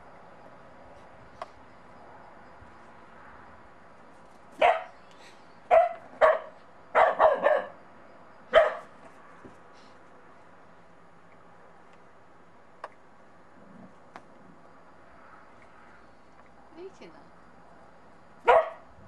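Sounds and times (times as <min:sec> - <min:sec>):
puppy barking: 0:04.6 - 0:05.0, 0:05.7 - 0:07.8, 0:08.5 - 0:08.9, 0:18.4 - 0:18.9.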